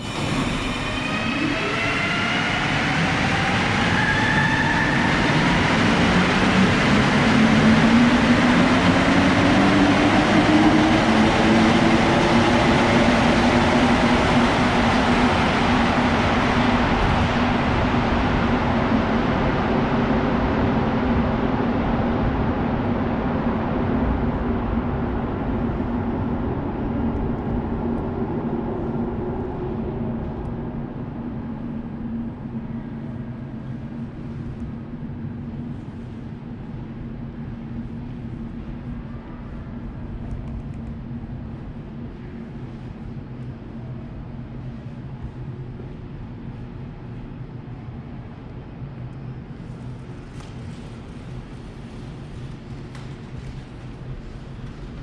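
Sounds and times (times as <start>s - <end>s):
metro train motors whining: 0.0s - 20.0s.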